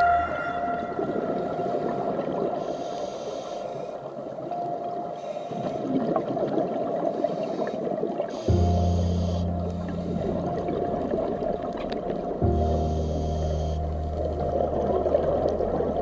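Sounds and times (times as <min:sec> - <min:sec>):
exhaled bubbles gurgling: 0:00.0 - 0:16.0
diver inhaling through regulator: 0:01.6 - 0:04.1, 0:07.2 - 0:10.6, 0:12.5 - 0:14.2.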